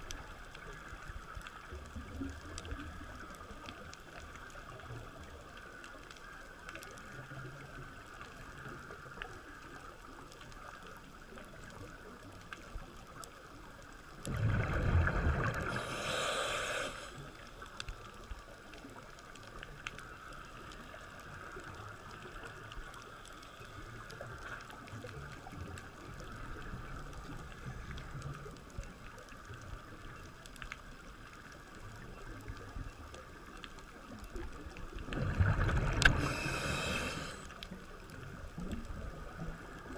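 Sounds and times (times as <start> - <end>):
faint clicks: 0.0 - 14.4, 15.0 - 39.9
gurgling regulator bubbles: 13.9 - 30.3, 31.8 - 39.9
underwater watery hiss: 14.3 - 17.8, 35.2 - 37.9.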